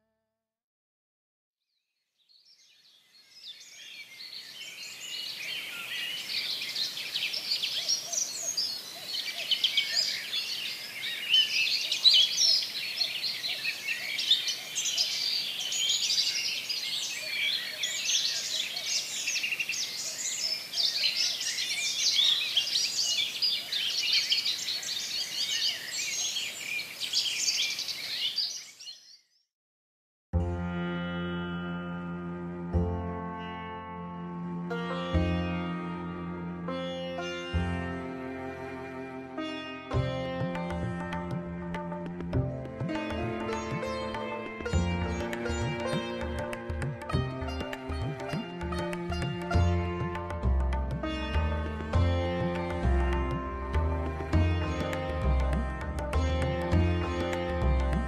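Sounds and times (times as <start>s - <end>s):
small birds chirping: 2.3s - 29.5s.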